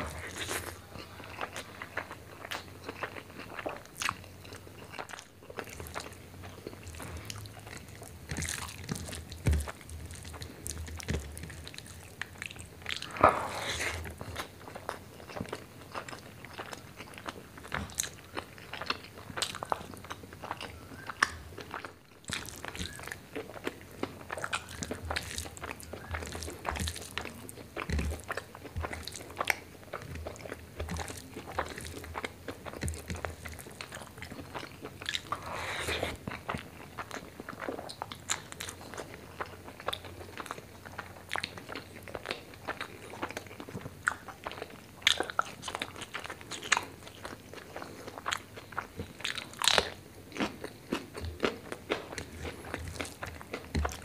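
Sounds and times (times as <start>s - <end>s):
wet chewing and lip smacking: 0.0s - 54.0s.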